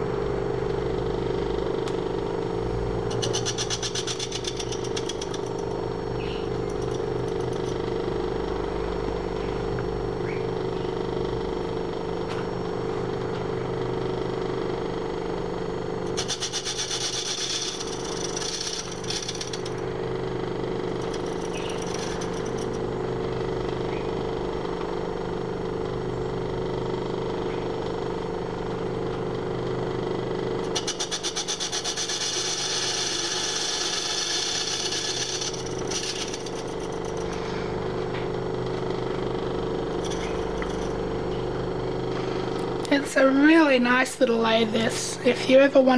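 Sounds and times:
lathe running: 1.0s - 10.0s, 13.0s - 26.0s, 26.6s - 43.2s
high-pitched tool scraping iron: 3.1s - 7.8s, 16.1s - 19.9s, 20.9s - 22.8s, 30.6s - 37.7s, 40.0s - 40.9s.

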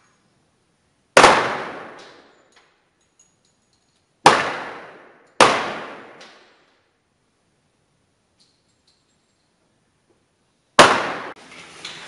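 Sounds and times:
pistol shots echoing indoors: 1.2s - 3.3s, 3.9s - 6.9s, 10.8s - 11.4s.

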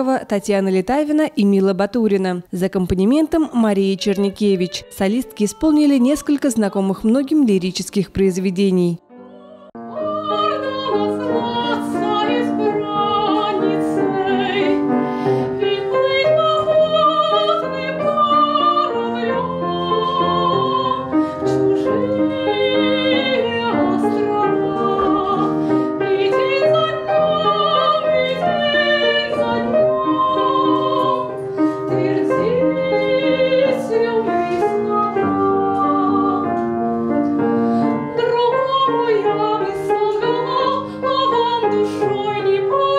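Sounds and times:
woman singing operatically: 2.8s - 14.9s, 15.6s - 36.6s, 38.0s - 42.9s
upright piano: 9.0s - 42.9s.

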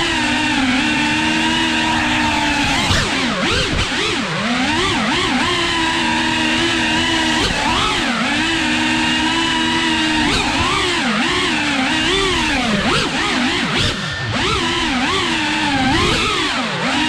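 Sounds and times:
drone motors whining: 0.0s - 17.0s.

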